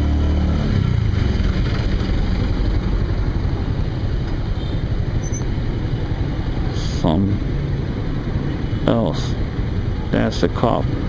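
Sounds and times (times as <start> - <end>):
motorcycle engine rumbling: 0.0 - 8.8.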